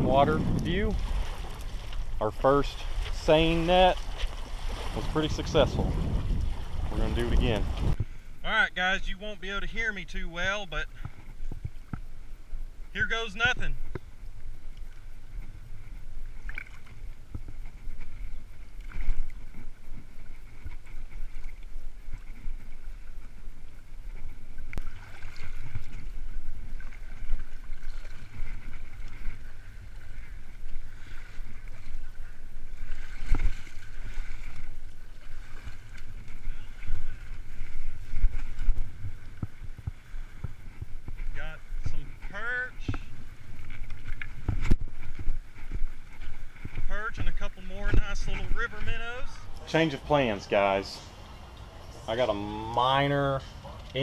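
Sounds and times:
water sloshing and splashing: 0:00.0 - 0:08.2, 0:13.1 - 0:54.0
steady low rumble: 0:00.0 - 0:17.7.

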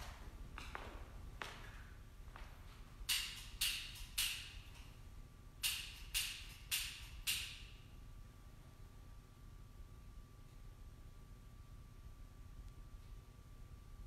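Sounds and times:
footsteps: 0:00.0 - 0:03.6.

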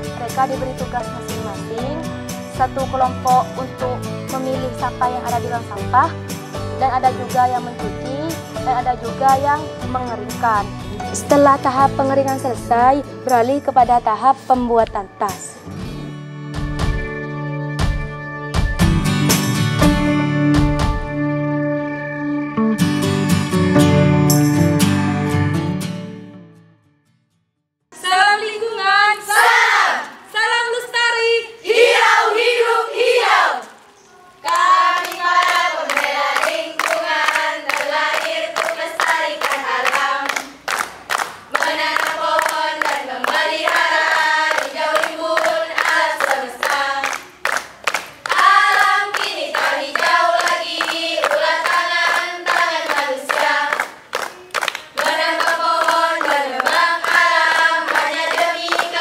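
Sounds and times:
girls singing in unison: 0:28.0 - 0:33.8, 0:34.4 - 0:40.6, 0:41.5 - 0:47.3, 0:48.2 - 0:54.0, 0:54.9 - 0:59.0
rhythmic hand claps: 0:34.4 - 0:59.0.

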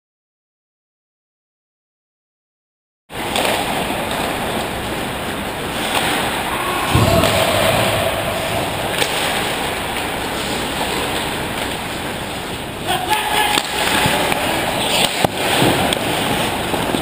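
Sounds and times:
steady rushing noise: 0:06.3 - 0:11.5
heavy thud: 0:06.5 - 0:10.0.

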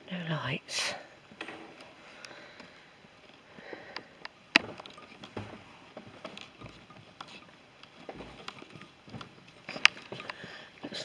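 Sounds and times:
soft footsteps: 0:01.3 - 0:11.0.

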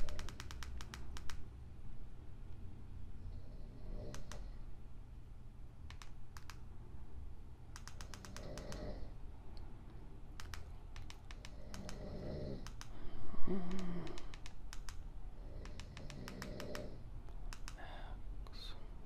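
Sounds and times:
person snoring: 0:03.3 - 0:04.4, 0:08.2 - 0:09.1, 0:11.5 - 0:14.3, 0:15.4 - 0:17.0.

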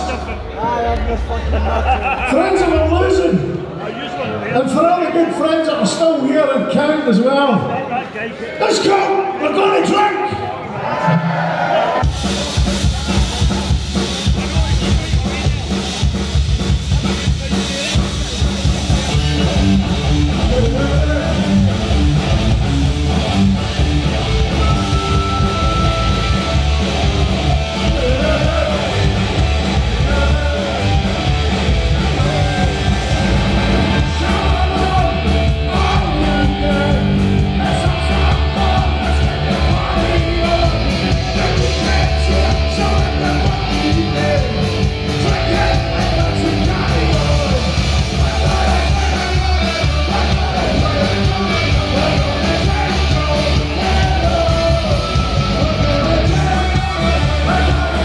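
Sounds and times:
punk rock band playing: 0:00.0 - 0:03.9, 0:11.6 - 0:58.0
distorted electric guitars: 0:11.2 - 0:58.0
drum kit beat: 0:12.0 - 0:58.0
man singing: 0:20.3 - 0:21.8, 0:27.7 - 0:31.2, 0:31.9 - 0:58.0.

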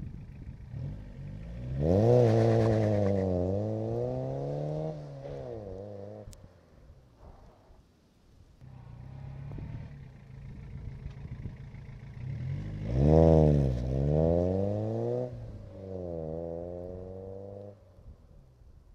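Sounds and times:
car driving past and accelerating: 0:00.7 - 0:06.4, 0:08.7 - 0:17.9.

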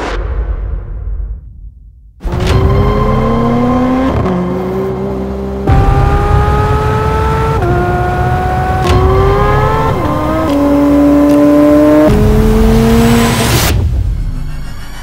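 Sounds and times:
whoosh: 0:00.0 - 0:02.0
sports car engine accelerating: 0:02.2 - 0:13.7.

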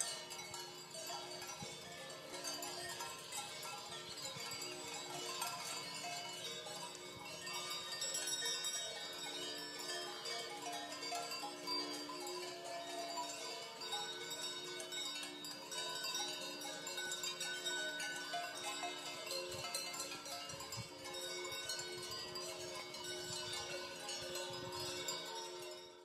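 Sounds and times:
livestock bells clanging: 0:00.0 - 0:26.0.

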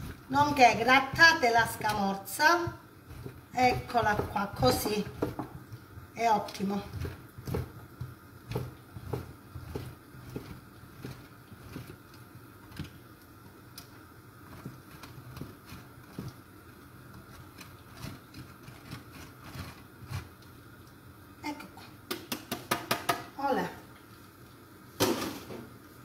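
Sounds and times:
cheese rasping on grater: 0:00.0 - 0:13.0, 0:14.3 - 0:20.5
faint steady hum: 0:00.0 - 0:26.0.

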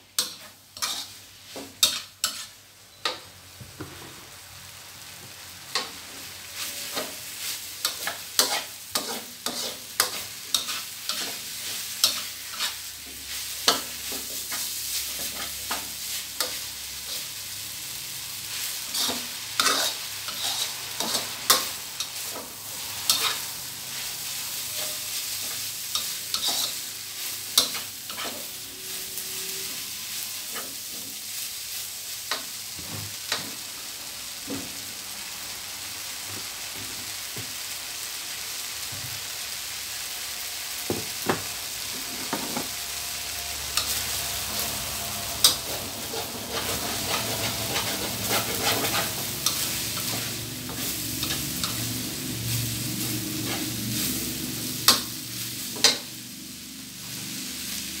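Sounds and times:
noodles sizzling in a wok: 0:00.0 - 0:58.0
spatula scraping a wok: 0:00.1 - 0:04.4, 0:05.4 - 0:33.7, 0:41.1 - 0:56.2.

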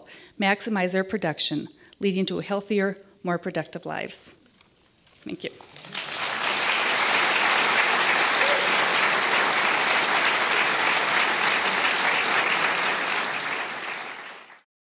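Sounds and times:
audience applauding: 0:05.5 - 0:14.7.

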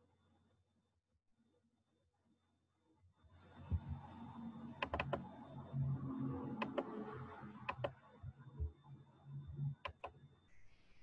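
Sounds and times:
computer clicks: 0:04.8 - 0:05.2.

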